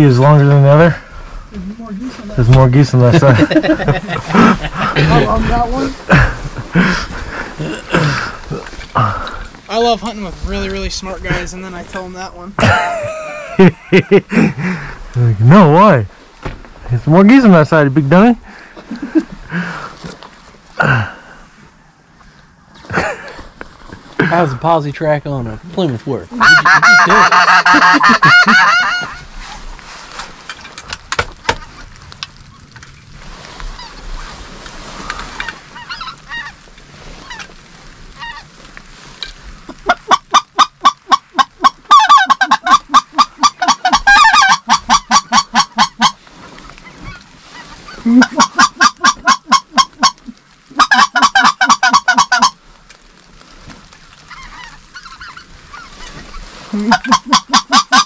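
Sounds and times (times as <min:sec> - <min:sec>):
faint geese honking: 0:25.8 - 0:30.2, 0:33.5 - 0:52.7, 0:53.9 - 0:58.0
goose call honking: 0:26.4 - 0:29.3, 0:35.4 - 0:36.6, 0:39.2 - 0:46.2, 0:46.8 - 0:52.6, 0:54.3 - 0:58.0.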